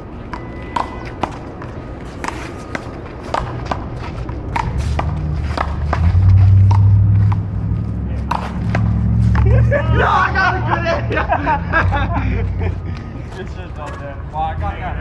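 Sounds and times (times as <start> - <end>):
ball struck by paddles: 0.3 - 3.9, 4.5 - 7.6, 8.2 - 9.5
low rumble: 4.5 - 12.6.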